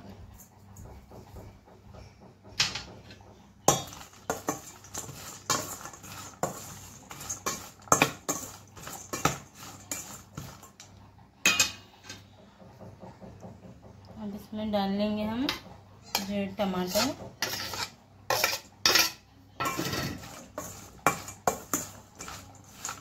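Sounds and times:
food stirred in steel bowl: 3.0 - 12.2, 15.3 - 23.0.

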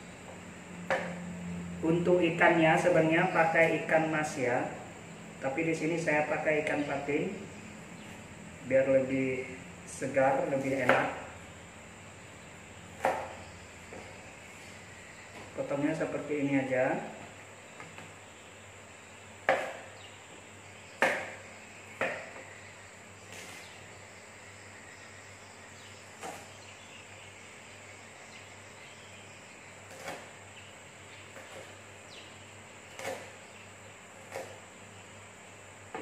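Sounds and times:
knife chopping on cutting board: 13.0 - 14.1, 19.4 - 20.0, 21.0 - 21.4, 22.0 - 22.4, 29.9 - 30.3, 32.9 - 33.4, 34.2 - 34.6.

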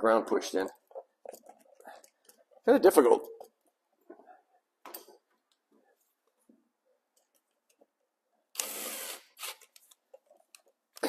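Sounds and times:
faint clicks and rubs: 0.6 - 8.0.

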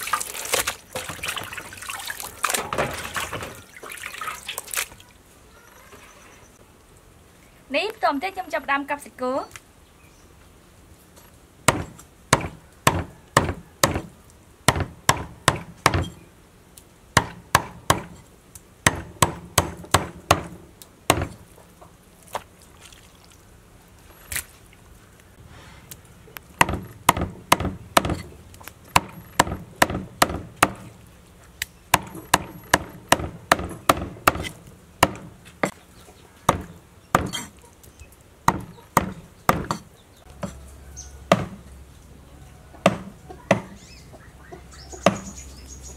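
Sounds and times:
cleaver chopping meat on wood: 11.7 - 14.1, 14.7 - 16.1, 17.2 - 18.2, 18.9 - 21.4, 26.6 - 28.2, 28.9 - 30.9, 31.9 - 35.8, 36.5 - 37.5, 38.4 - 40.6, 41.3 - 41.6, 42.8 - 43.8, 45.0 - 45.3.

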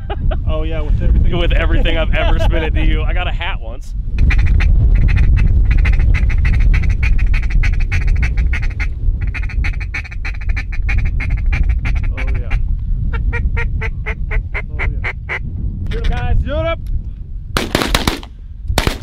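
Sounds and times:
wind rumble on microphone: 0.0 - 19.0
ducks quacking rapidly: 4.2 - 15.4.

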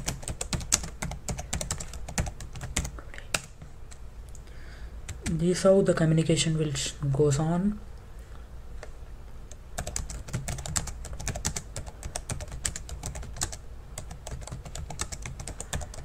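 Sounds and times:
typing on computer keyboard: 0.0 - 3.5, 9.8 - 16.0.

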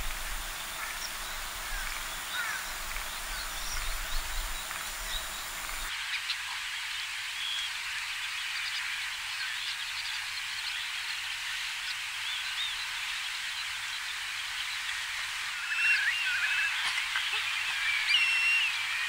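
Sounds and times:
small birds chattering: 0.0 - 5.9
bird whistles and trill: 15.5 - 19.0.

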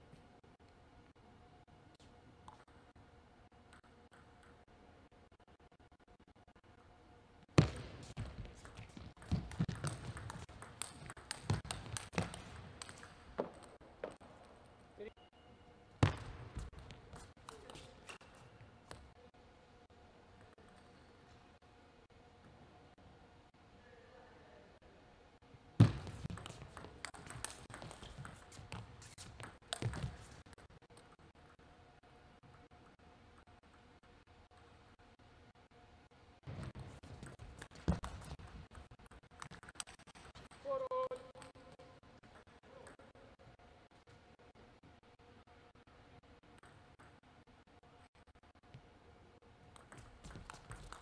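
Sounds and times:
table tennis ball clicks: 8.6 - 14.2, 26.2 - 30.2.

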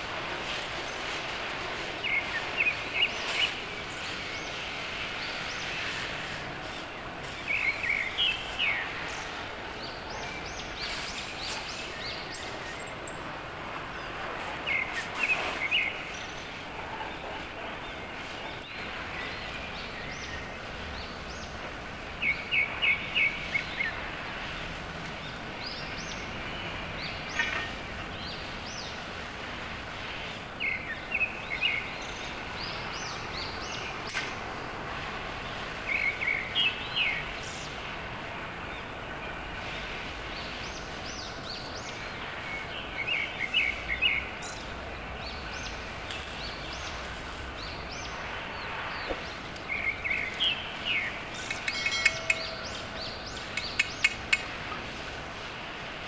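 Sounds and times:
small birds chirping: 0.0 - 29.4, 40.3 - 55.1
steady hiss: 0.0 - 56.0.

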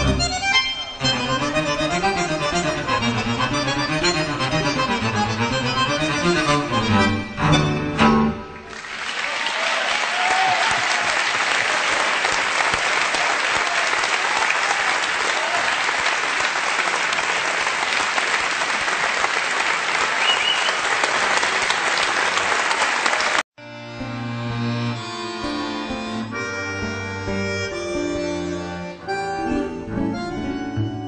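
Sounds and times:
bandoneon music: 0.0 - 8.7, 23.6 - 31.0
audience applauding: 8.6 - 23.5.

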